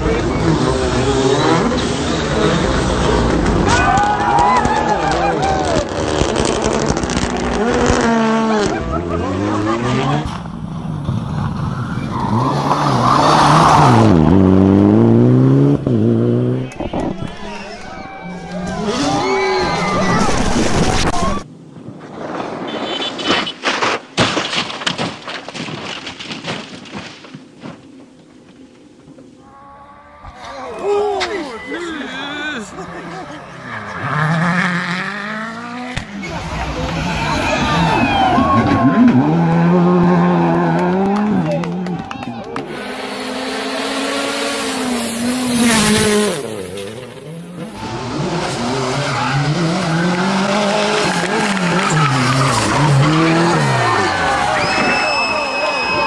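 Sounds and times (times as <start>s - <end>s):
rally car engines revving: 0.0s - 21.5s, 30.4s - 55.9s
sliding tyres on gravel: 16.6s - 29.4s, 42.8s - 56.0s
car bodywork crashing impacts: 23.2s - 27.8s.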